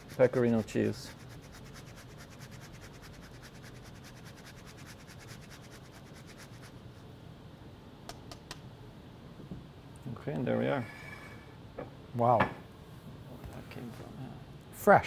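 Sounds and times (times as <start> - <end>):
cheese grating on a rasp grater: 0.0 - 6.7.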